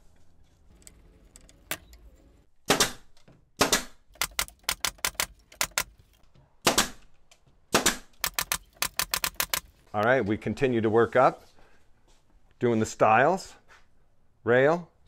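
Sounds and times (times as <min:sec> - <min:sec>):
nail gun shots: 0:02.7 - 0:05.9, 0:06.6 - 0:07.0, 0:07.7 - 0:09.6.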